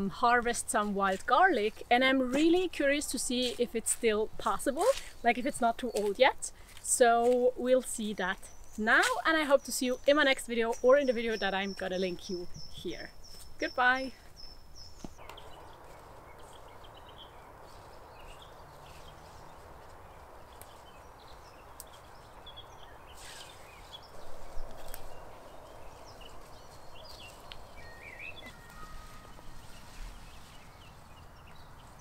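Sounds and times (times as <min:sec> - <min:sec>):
leaves rustling: 0:00.0 - 0:32.0
small birds chirping: 0:00.0 - 0:32.0
background hiss: 0:12.4 - 0:32.0.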